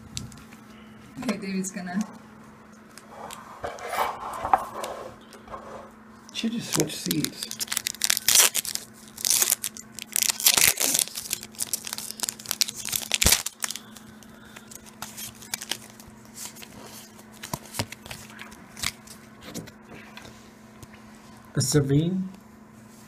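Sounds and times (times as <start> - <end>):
plastic wrapper tearing and crinkling: 6.6 - 19.1
cards clicking and rustling: 6.6 - 19.2.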